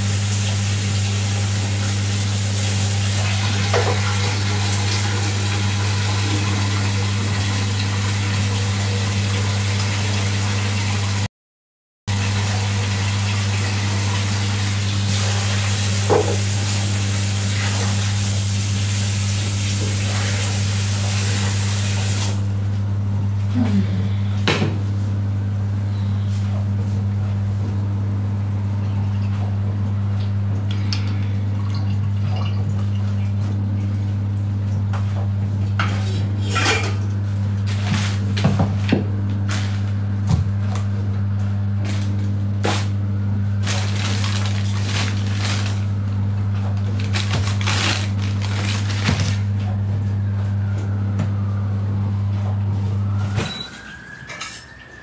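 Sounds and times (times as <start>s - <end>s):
loud low hum: 1.9s - 9.2s, 22.4s - 53.7s.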